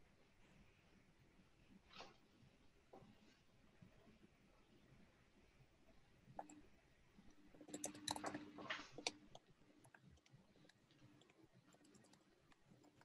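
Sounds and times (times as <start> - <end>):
faint low hum: 0.0 - 13.0
small clicks: 7.2 - 13.0.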